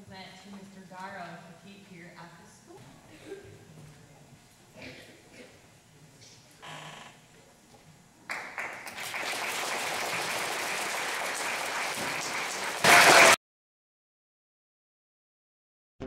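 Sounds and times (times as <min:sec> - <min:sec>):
audience applauding: 0:08.3 - 0:13.4.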